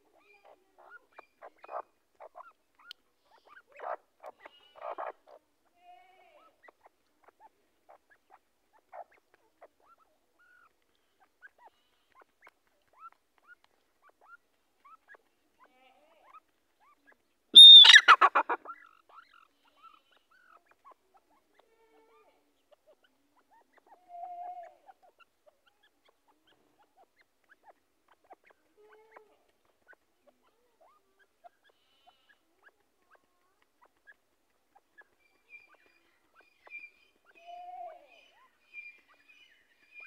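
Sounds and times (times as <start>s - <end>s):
faint ticks: 2.7s - 3.1s, 31.3s - 36.7s
francolin whistled call: 17.6s - 18.2s.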